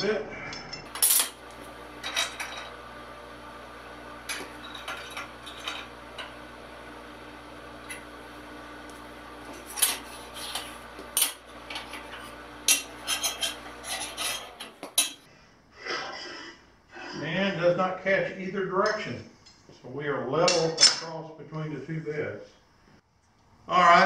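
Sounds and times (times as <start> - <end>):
steady low hum: 0.0 - 15.8.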